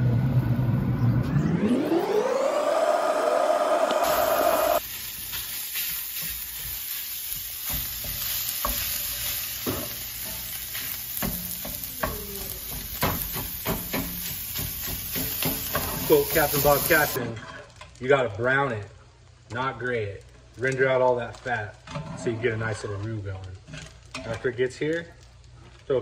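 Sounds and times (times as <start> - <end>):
engine-like rev and whine: 0.0 - 4.8
sausage sizzling in skillet: 4.0 - 17.9
spatula scraping and tapping pan: 5.2 - 16.2.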